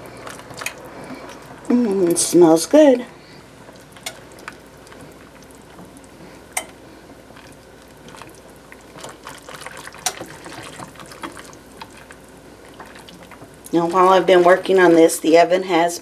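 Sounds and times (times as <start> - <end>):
whisk stirring thick sauce: 7.3 - 15.4.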